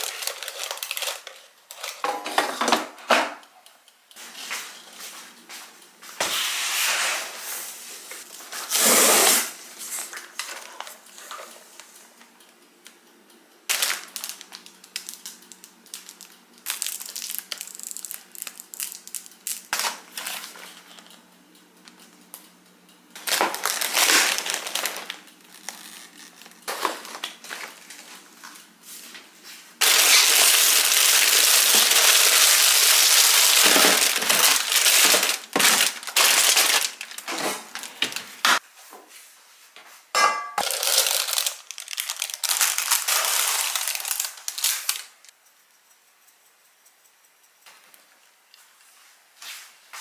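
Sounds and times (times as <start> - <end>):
plastic packaging crinkling: 0.0 - 2.1, 13.7 - 21.2, 23.2 - 28.6, 29.8 - 38.5, 40.6 - 45.3.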